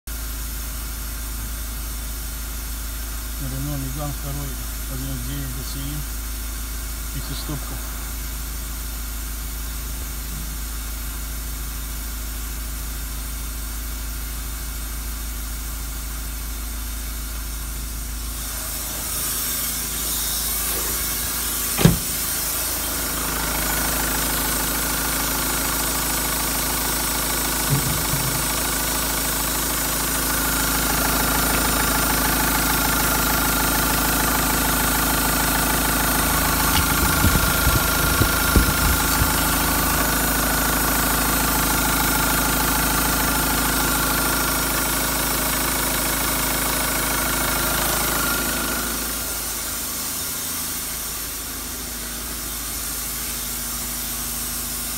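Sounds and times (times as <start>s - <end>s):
diesel engine idling: 20.6s - 41.1s
sharp knock: 21.8s - 22.2s, 36.7s - 39.5s.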